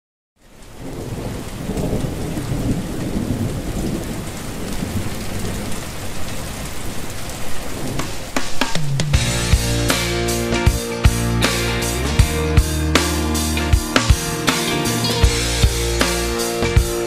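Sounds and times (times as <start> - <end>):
steady rain: 0.4 - 17.0
low thunder rumbling: 0.7 - 10.5.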